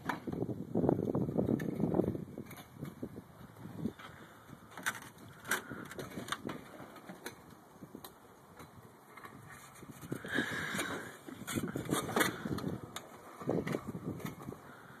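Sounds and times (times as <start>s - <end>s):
metal chair legs scraping ice: 8.6s - 15.0s.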